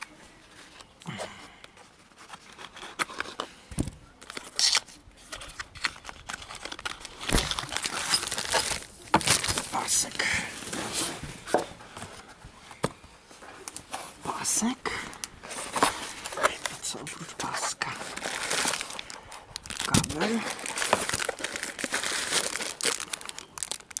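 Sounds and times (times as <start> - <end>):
plastic bag crinkling: 4.2 - 11.2, 14.5 - 24.0
cardboard rustling and scraping: 4.3 - 14.3, 15.4 - 16.8.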